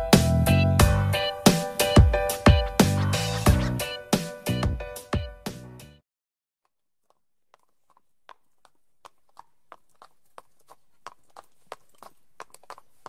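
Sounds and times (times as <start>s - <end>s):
music cue: 0.0s - 6.0s
horse hooves clip-clopping: 7.0s - 13.0s.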